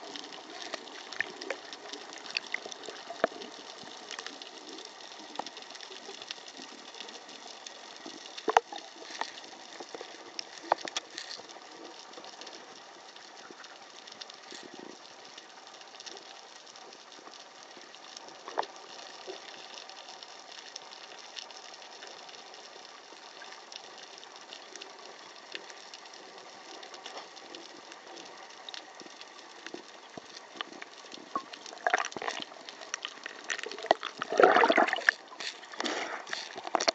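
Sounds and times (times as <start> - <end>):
sharp underwater clicks: 0.0 - 36.9
water splashing and bubbling: 0.0 - 36.9
underwater hiss: 29.6 - 36.9.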